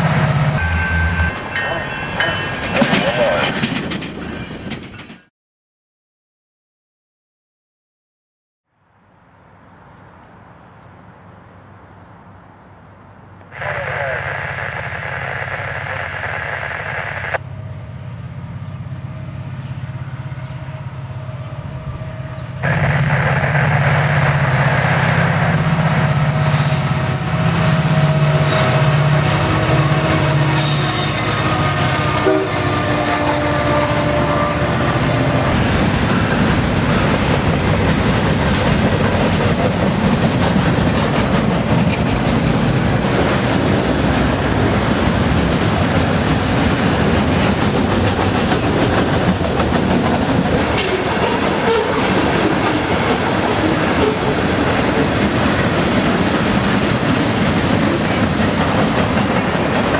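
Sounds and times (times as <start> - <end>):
train wheels clacking on rail joints: 2.2 - 5.3, 44.9 - 59.9
diesel locomotive engine rumble: 11.9 - 59.9
train air horn: 27.9 - 35.6.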